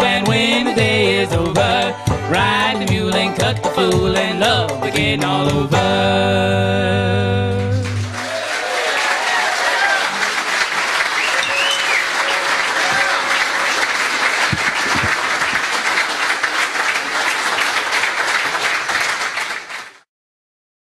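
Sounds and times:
audience applauding: 0:07.7 - 0:20.1
short whistle: 0:11.2 - 0:12.5.

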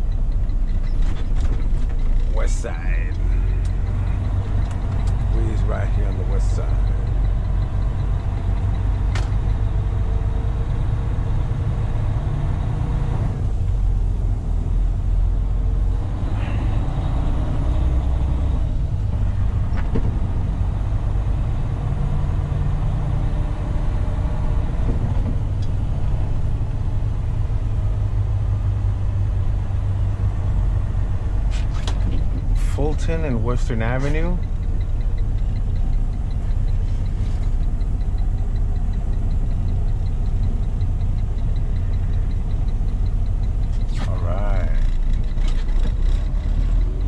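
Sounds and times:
truck diesel engine droning: 0:00.0 - 0:47.0.

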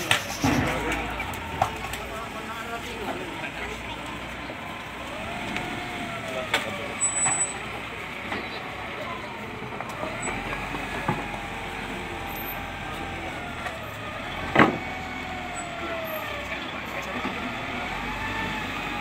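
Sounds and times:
loud metal clank: 0:00.0 - 0:02.2
wheel loader diesel engine: 0:00.0 - 0:19.0.

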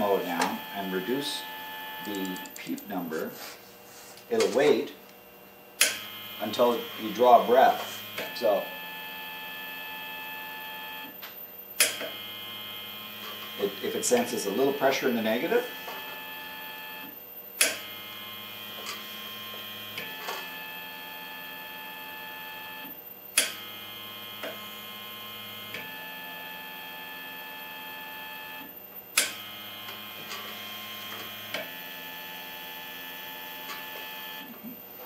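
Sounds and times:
stepper motor whining: 0:00.0 - 0:02.5, 0:05.8 - 0:11.2
sharp click: 0:05.8 - 0:06.0, 0:11.3 - 0:12.1, 0:17.6 - 0:17.8, 0:23.4 - 0:23.6, 0:29.2 - 0:29.4.

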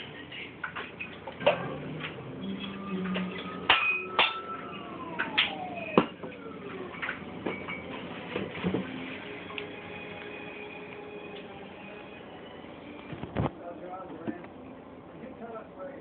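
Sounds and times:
downward sliding tone: 0:02.5 - 0:07.3
glass bottles clinking: 0:03.1 - 0:04.6.

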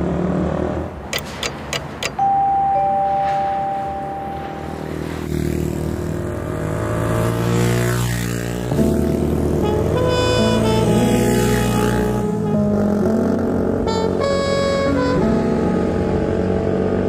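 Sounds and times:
quick clicks: 0:01.1 - 0:02.2
two-note tone: 0:02.1 - 0:05.0, 0:08.7 - 0:16.6
motorcycles passing by: 0:02.7 - 0:17.0.

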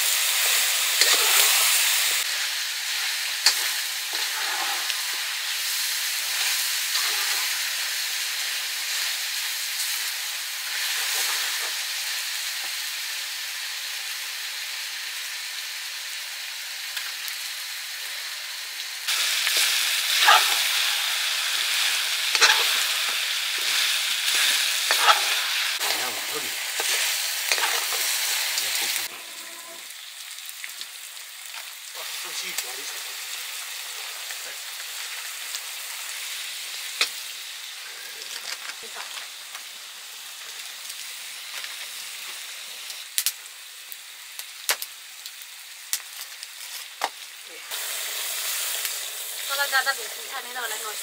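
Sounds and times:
curry sizzling in oil: 0:00.0 - 0:51.0
spoon scraping pan: 0:22.2 - 0:26.1, 0:26.7 - 0:29.8.

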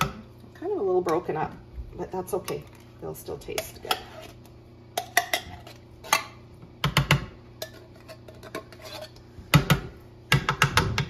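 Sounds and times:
metal spoon scraping in tin can: 0:03.6 - 0:04.4, 0:07.6 - 0:09.2.

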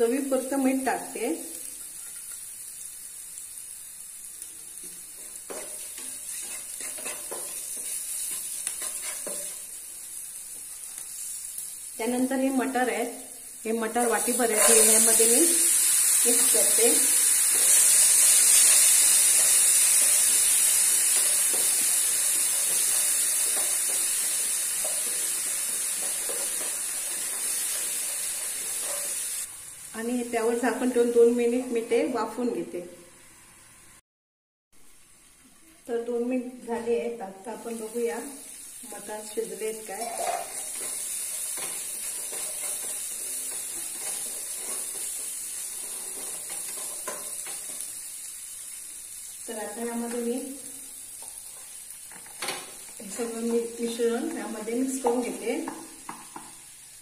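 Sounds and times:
peas sizzling in oil: 0:00.0 - 0:32.6, 0:34.8 - 0:57.0
spatula scraping a pan: 0:04.8 - 0:09.8, 0:14.4 - 0:15.2, 0:17.2 - 0:29.5, 0:39.9 - 0:47.9.

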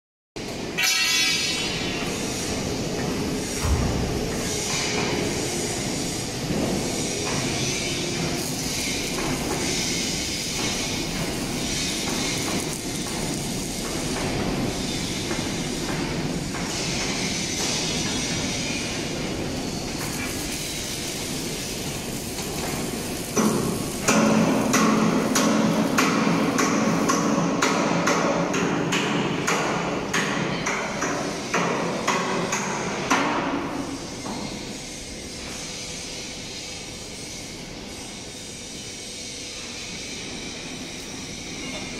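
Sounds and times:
rushing hissing workshop noise: 0:00.4 - 0:41.9
hammer striking steel: 0:00.8 - 0:02.2, 0:23.3 - 0:33.8.

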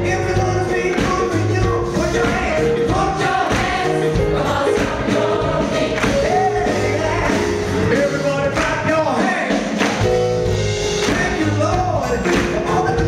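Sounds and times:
drums: 0:00.0 - 0:13.0
piano: 0:00.0 - 0:13.0
gospel choir singing: 0:00.6 - 0:10.0.

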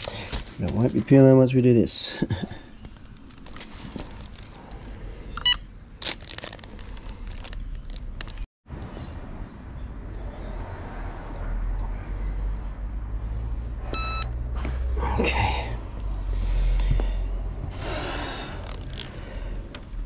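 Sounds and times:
plastic sheet rustling: 0:03.0 - 0:04.6, 0:06.0 - 0:08.5
short high timer beep: 0:14.0 - 0:14.3.

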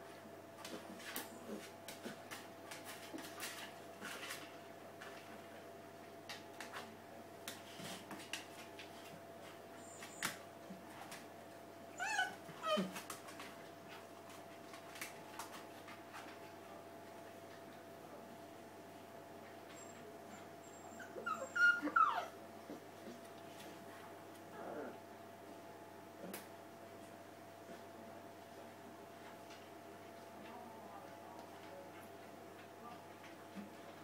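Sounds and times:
puppy whine: 0:11.9 - 0:13.0, 0:19.8 - 0:23.2, 0:24.5 - 0:25.0.

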